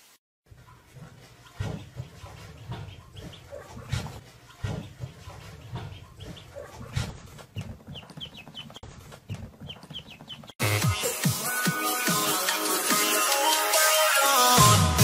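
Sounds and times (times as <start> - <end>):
ducklings peeping: 2.5 - 4.0, 4.7 - 10.6.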